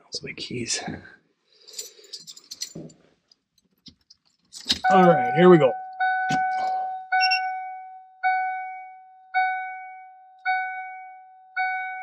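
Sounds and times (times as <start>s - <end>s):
electronic warning chime beeping: 4.8s - 8.6s.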